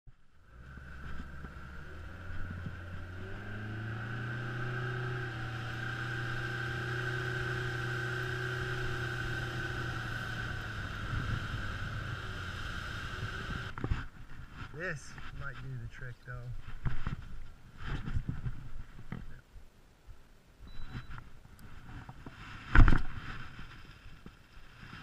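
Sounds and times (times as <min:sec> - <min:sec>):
motorboat engine running: 0:00.4 - 0:14.0.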